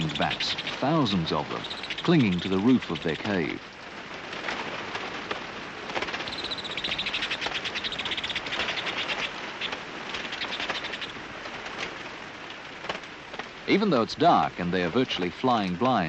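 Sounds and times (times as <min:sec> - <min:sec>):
bats squeaking and chittering: 0:00.0 - 0:03.6, 0:06.0 - 0:11.2.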